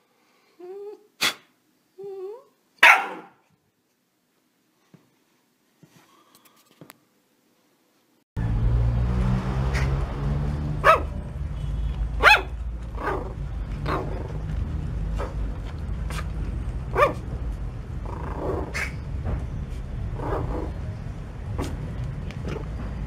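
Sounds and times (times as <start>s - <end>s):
puppy yapping barks: 2.8s - 3.4s, 10.8s - 11.2s, 12.2s - 14.4s, 16.9s - 17.2s, 18.5s - 19.0s, 20.2s - 20.7s.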